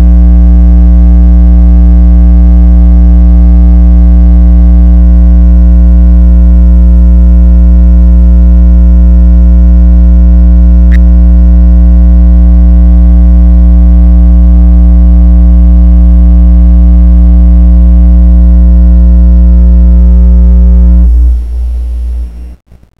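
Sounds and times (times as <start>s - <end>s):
low rumble: 1.5s - 22.9s
short click: 10.9s - 11.1s
synthesizer drone: 19.0s - 22.6s.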